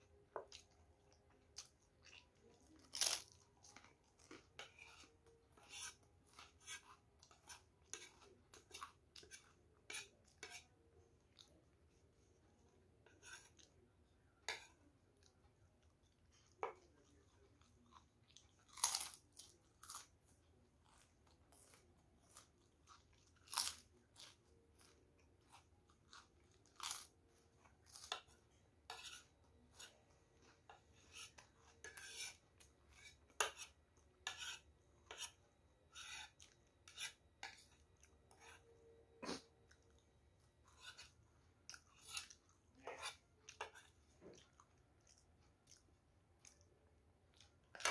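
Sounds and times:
chewing crunchy crackers: 0.5 - 4.6, 16.1 - 28.3, 41.6 - 47.9.

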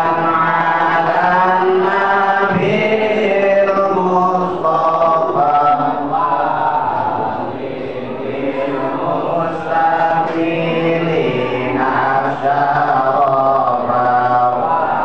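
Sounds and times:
men chanting in unison: 0.0 - 15.0.

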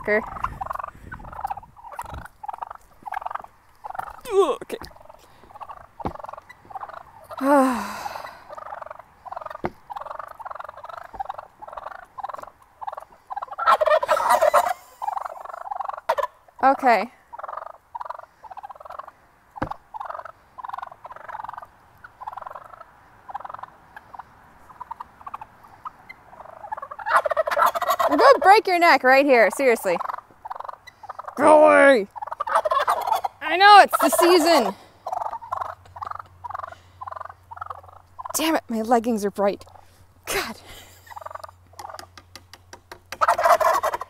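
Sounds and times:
turkey gobbles: 0.0 - 16.6, 17.2 - 28.6, 29.7 - 38.5, 40.8 - 44.0
wild turkeys calling: 0.0 - 38.9, 39.6 - 40.2, 40.8 - 44.0.

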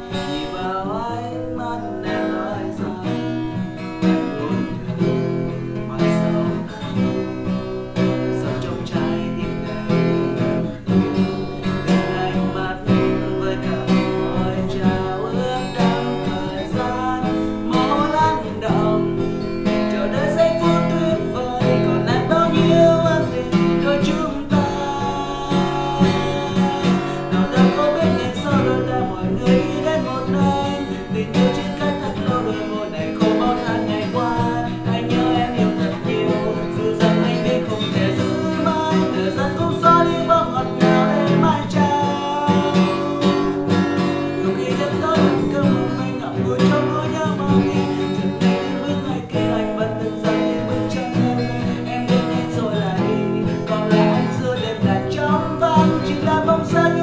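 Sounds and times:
acoustic guitar strumming: 0.0 - 57.0
man singing: 0.0 - 57.0.

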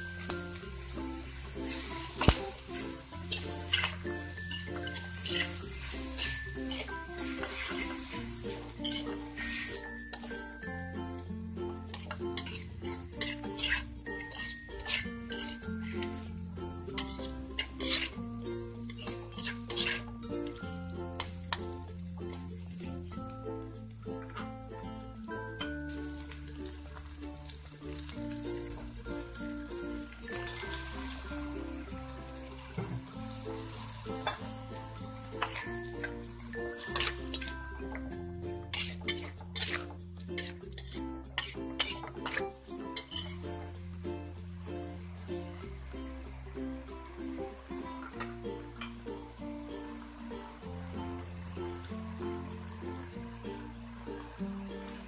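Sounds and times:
metal spatula scraping wok: 0.0 - 10.7, 11.7 - 22.7, 30.0 - 44.0
background music: 0.0 - 55.0
food sizzling: 0.0 - 55.0.

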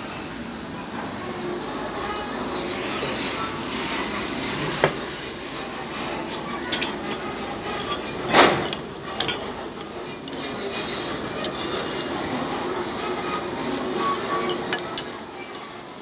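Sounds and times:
spoon scraping bowl: 6.7 - 15.9
spoon clinking against bowl: 6.7 - 16.0.

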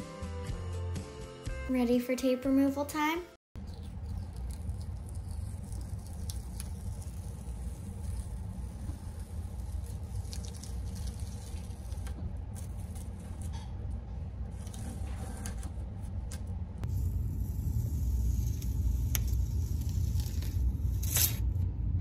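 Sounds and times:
steady low rumble: 3.6 - 22.0
tape peeling off wood: 3.7 - 13.5.

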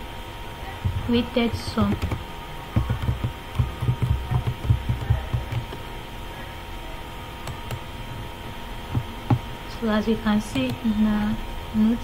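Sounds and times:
electrical hum: 0.0 - 12.0
keyboard typing thuds: 0.8 - 5.9, 7.4 - 7.8, 8.9 - 9.5.

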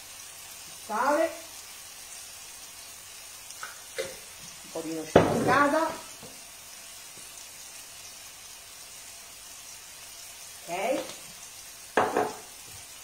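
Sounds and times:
food sizzling in a frying pan: 0.0 - 13.0
woman's voice: 0.9 - 1.5, 4.7 - 6.1, 10.6 - 11.2.

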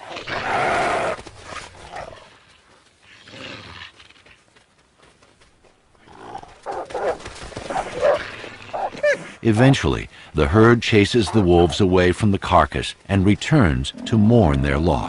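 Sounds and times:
animals growling and roaring: 0.0 - 2.4, 13.8 - 15.0.

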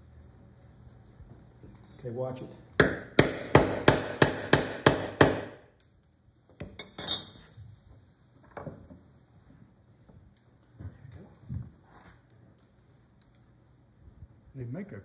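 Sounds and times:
hammer tapping metal tool: 2.8 - 5.6.

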